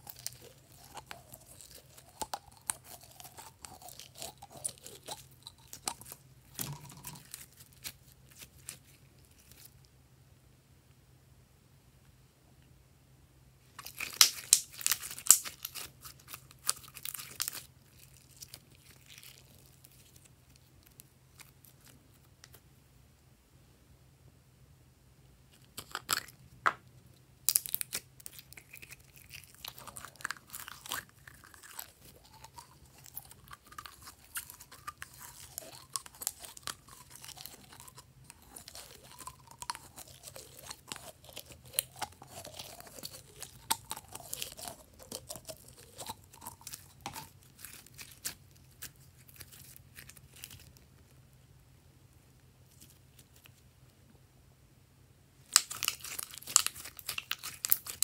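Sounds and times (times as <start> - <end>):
slime crackling and squelching: 0.0 - 9.8, 13.7 - 22.5, 27.4 - 51.0, 55.5 - 58.0.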